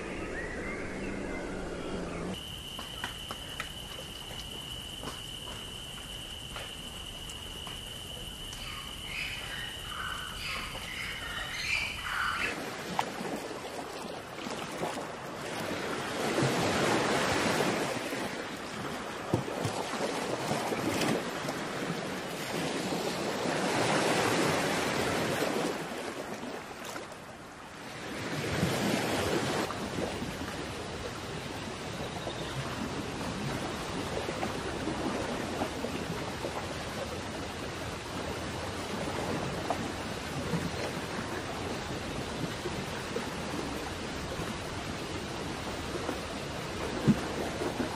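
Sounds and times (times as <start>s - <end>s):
bird chirps: 0.0s - 2.4s
high insect drone: 2.3s - 11.1s.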